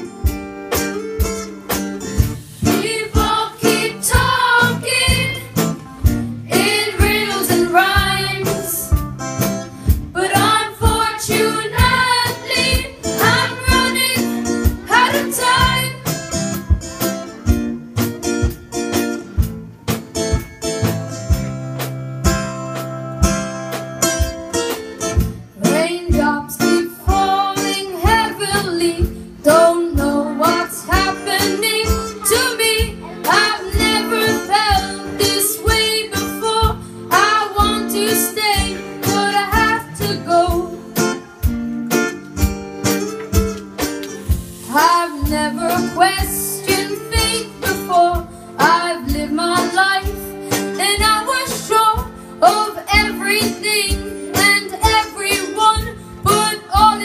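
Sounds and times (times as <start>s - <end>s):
strummed guitar with steady beat: 0.0s - 57.0s
young person singing: 25.6s - 41.0s, 44.7s - 57.0s.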